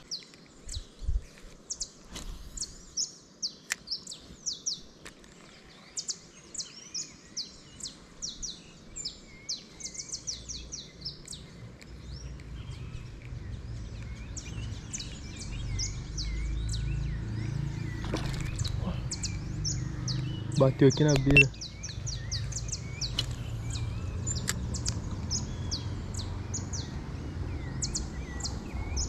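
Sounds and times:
birds chirping: 0:00.0 - 0:29.0
sharp clicks: 0:21.1 - 0:22.0.

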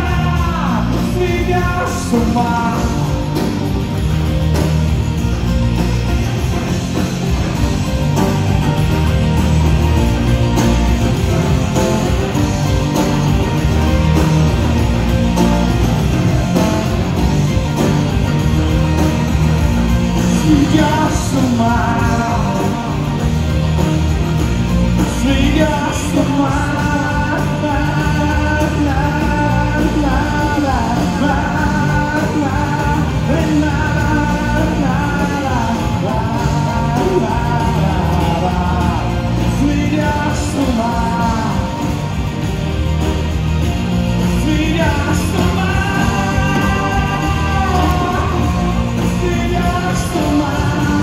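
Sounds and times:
pop-rock band playing: 0:00.0 - 0:51.0
wordless singing: 0:44.2 - 0:51.0.

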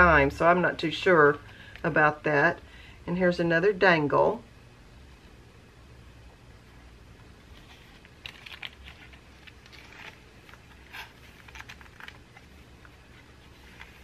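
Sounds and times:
paper pages rustling: 0:07.4 - 0:14.0.

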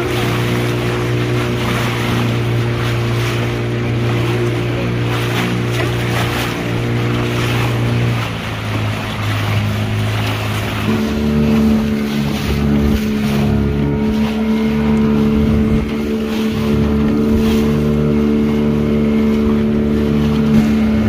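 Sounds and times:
motorboat engine humming: 0:00.0 - 0:21.0
wind on microphone: 0:09.2 - 0:21.0.

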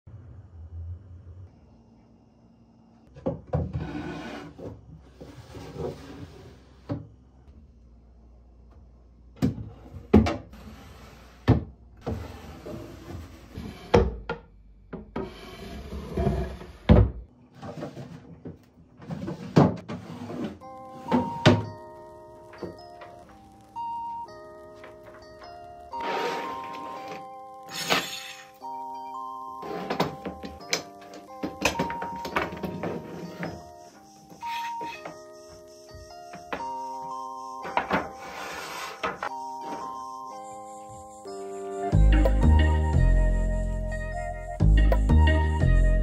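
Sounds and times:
music: 0:20.6 - 0:46.0
wooden drawers sliding: 0:25.9 - 0:28.2, 0:37.6 - 0:40.0.

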